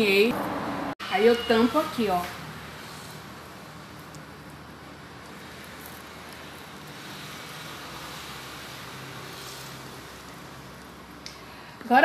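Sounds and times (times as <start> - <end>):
even hiss: 5.2 - 12.0.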